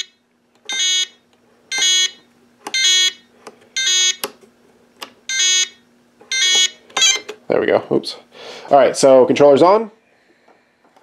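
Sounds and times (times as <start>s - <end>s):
transmitter warning beeps: 0.0s - 4.3s, 5.3s - 7.4s.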